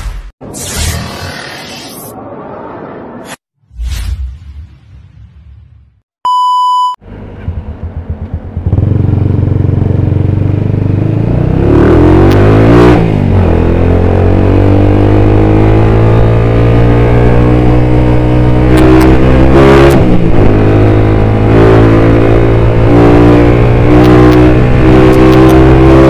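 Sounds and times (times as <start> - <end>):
short electronic beep: 6.2 - 7.0
motorcycle engine running: 7.4 - 11.7.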